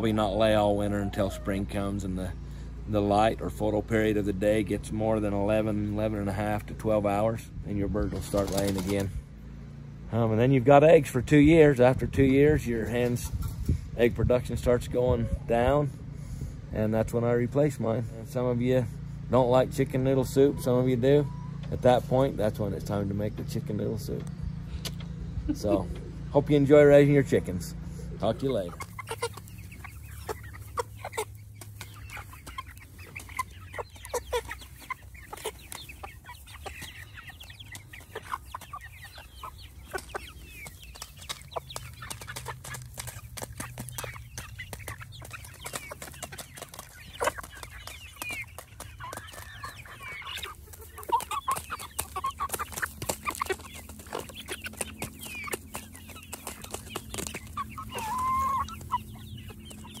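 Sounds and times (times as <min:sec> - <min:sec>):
hens clucking: 0:00.0 - 1:00.0.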